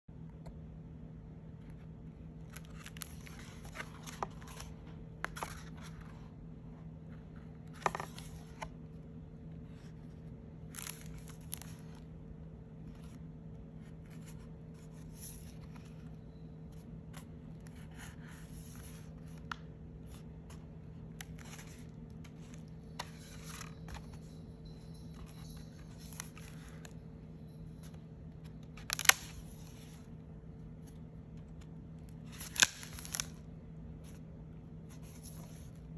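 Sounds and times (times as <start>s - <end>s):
low hum: 0.1s - 35.9s
paper pages turning: 1.6s - 6.4s, 7.0s - 12.2s, 12.8s - 24.5s, 25.1s - 35.9s
paper crackle: 2.4s - 6.3s, 7.1s - 12.2s, 12.8s - 30.2s, 30.8s - 34.2s.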